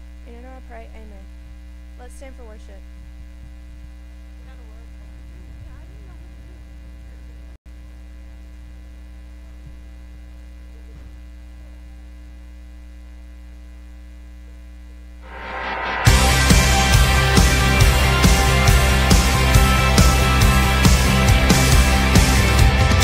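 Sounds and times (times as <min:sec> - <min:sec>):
electrical mains hum: 0:00.0 - 0:15.2.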